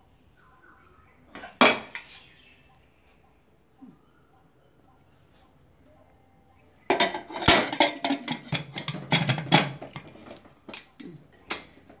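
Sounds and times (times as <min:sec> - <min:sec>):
metal pot lid clanking: 0:06.9 - 0:10.1.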